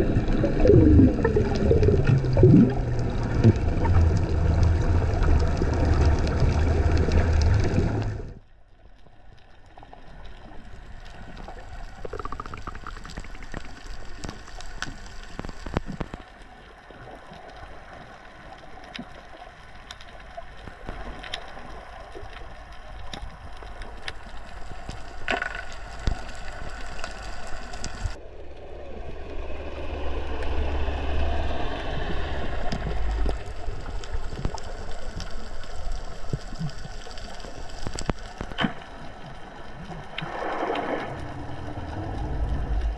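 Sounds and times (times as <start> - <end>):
low rumble: 0.0 - 8.5, 26.2 - 42.9
sharp underwater clicks and crackles: 0.0 - 42.9
muffled underwater hiss: 23.4 - 42.9.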